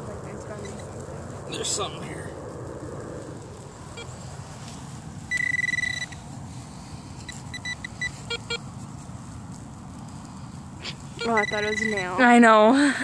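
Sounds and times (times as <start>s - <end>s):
metal detector beeping: 5.3s - 6.2s, 7.2s - 8.7s, 11.2s - 12.3s.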